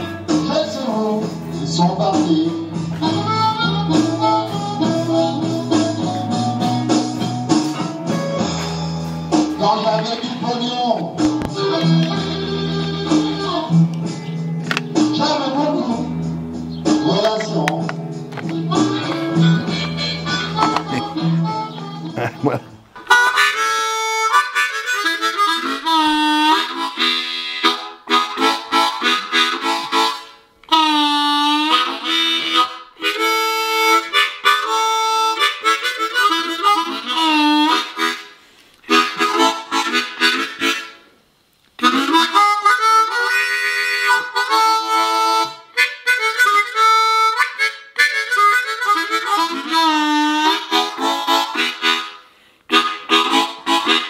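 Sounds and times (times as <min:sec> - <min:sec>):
harmonica playing solo: 0:00.0 - 0:17.0, 0:18.5 - 0:41.2, 0:41.8 - 0:54.0.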